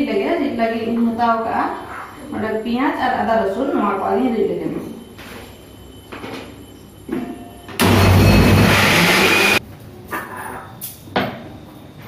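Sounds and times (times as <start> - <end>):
electric mixer grinder running: 7.8 - 9.6.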